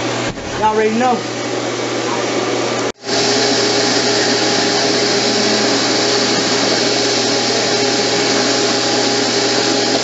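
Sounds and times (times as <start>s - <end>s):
electric hand dryer blowing: 0.0s - 10.0s.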